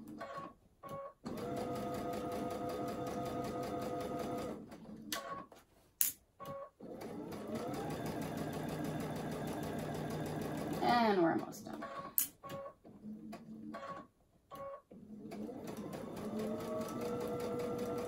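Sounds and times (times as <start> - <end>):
sewing machine stitching: 1.2 - 5.4, 6.8 - 11.0, 15.0 - 18.0.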